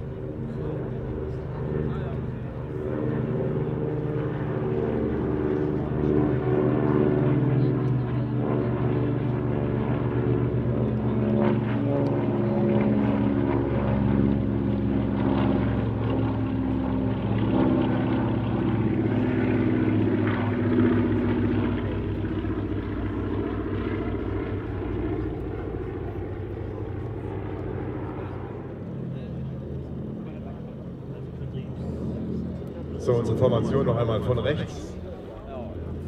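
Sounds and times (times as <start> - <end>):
propeller planes droning overhead: 0.0 - 36.0.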